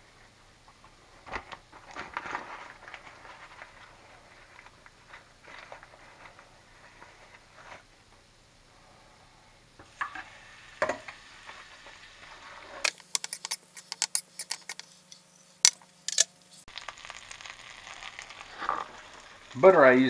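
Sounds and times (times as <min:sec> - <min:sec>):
butter sizzling in skillet: 0:09.8 - 0:20.0
utensil clicking against pan: 0:12.9 - 0:16.3.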